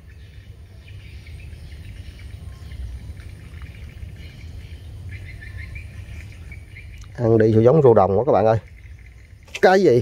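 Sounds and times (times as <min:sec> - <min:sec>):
faint high chirping: 0:00.0 - 0:07.4.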